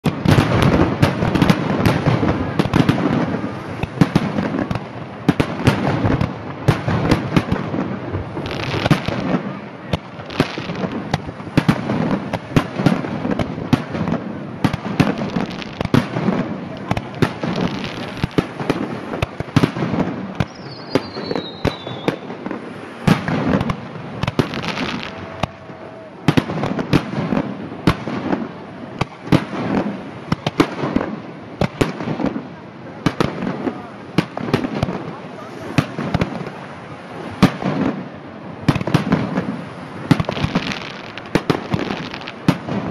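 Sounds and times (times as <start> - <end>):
fireworks bangs and crackling: 0.0 - 42.9
falling firework whistle: 20.0 - 27.4.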